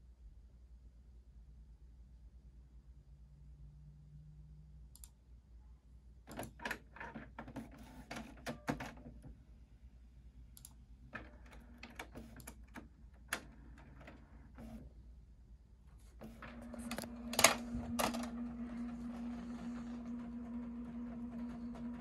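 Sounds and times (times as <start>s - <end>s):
faint motor hum: 6.6s - 22.0s.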